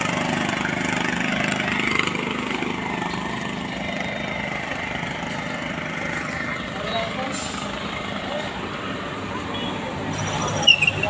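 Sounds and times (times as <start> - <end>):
small engine idling: 0.0 - 8.5.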